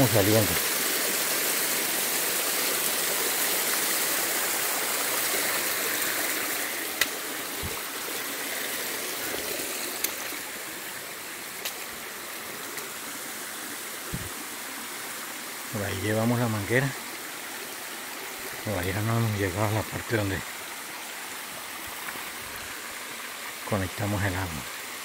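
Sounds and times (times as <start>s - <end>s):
stream rushing over rocks: 0.0s - 25.0s.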